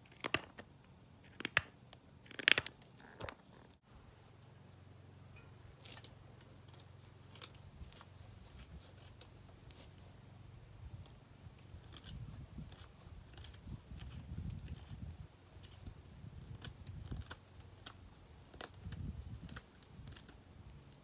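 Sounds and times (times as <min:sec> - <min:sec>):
knife scraping wood: 0:05.7 - 0:10.2, 0:10.9 - 0:21.0.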